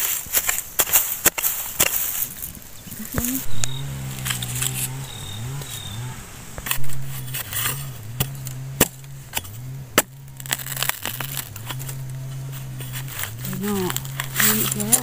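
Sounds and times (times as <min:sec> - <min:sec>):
digging blade chopping into soil: 0:00.0 - 0:02.5, 0:03.1 - 0:15.0
low droning tone: 0:03.0 - 0:15.0.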